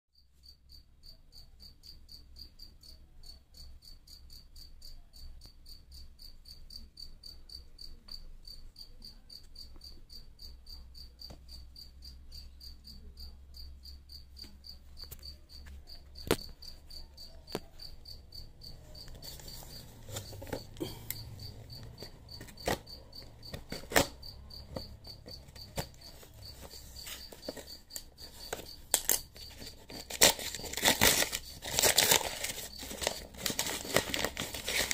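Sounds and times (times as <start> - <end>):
crickets chirping: 0.2 - 34.9
cardboard parcel clicks and rustles: 19.1 - 34.9
scissors cutting wrapping: 23.5 - 24.2, 28.4 - 34.9.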